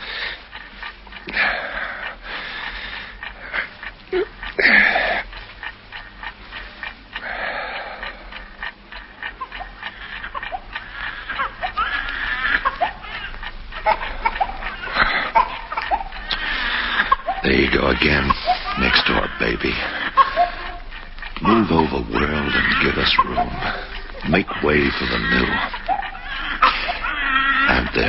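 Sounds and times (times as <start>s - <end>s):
baby crying: 9.4s - 28.0s.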